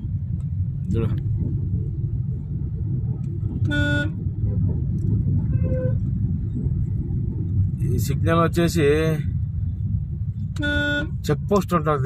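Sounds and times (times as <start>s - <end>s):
road and engine rumble: 0.0s - 12.0s
higher-pitched horn: 3.6s - 4.2s, 10.6s - 11.2s
vehicle horn honking: 3.6s - 4.2s, 5.5s - 6.0s, 10.6s - 11.2s.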